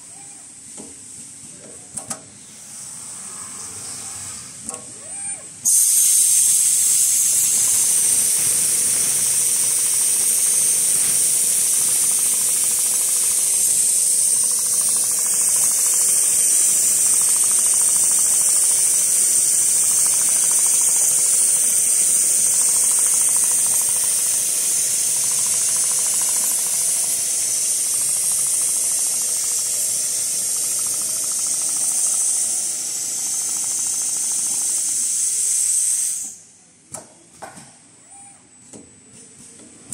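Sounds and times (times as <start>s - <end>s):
steady high hiss: 5.6s - 36.7s.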